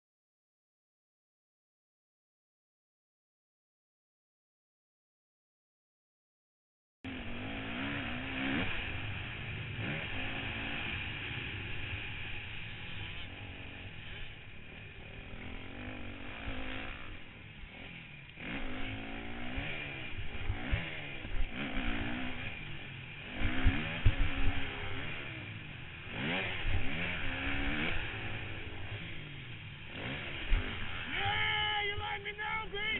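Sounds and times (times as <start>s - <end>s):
motocross bike engine revving: 7.1s - 32.9s.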